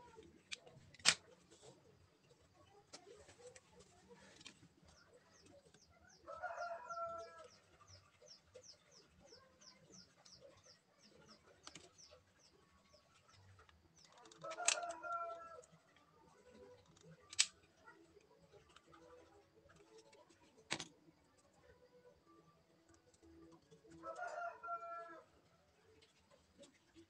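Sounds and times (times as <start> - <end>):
sharp plastic clicks: 0.1 - 1.6, 13.6 - 15.1, 16.6 - 18.9, 19.8 - 21.0
rooster crowing: 6.2 - 7.4, 14.4 - 15.6, 24.0 - 25.3.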